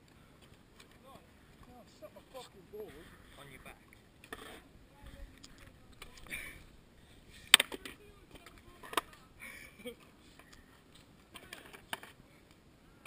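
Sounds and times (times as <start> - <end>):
skateboard clacking on concrete: 7.5 - 9.2, 11.3 - 12.2.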